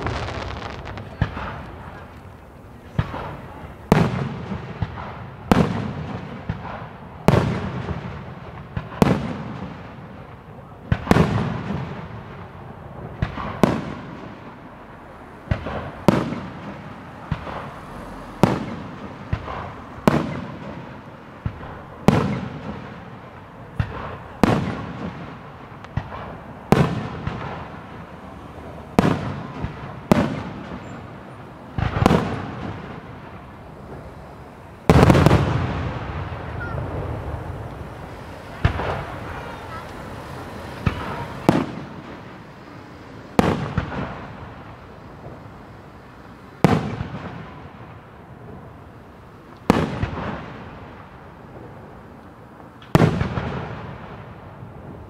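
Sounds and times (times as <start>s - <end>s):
firework shells bursting: 0.0s - 5.3s.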